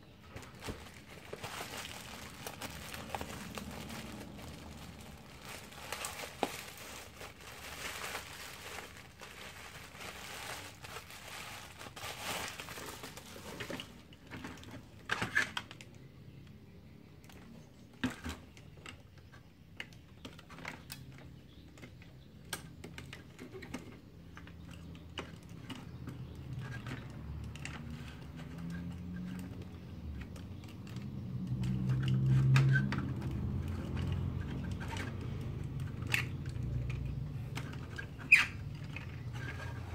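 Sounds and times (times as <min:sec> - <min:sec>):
plastic bag crinkling: 0:00.2 - 0:14.7.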